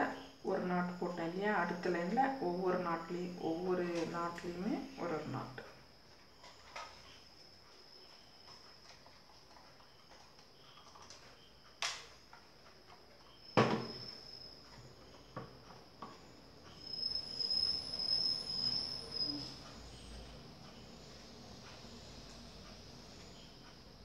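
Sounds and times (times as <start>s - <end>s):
high cricket-like trill: 9.7s - 24.0s.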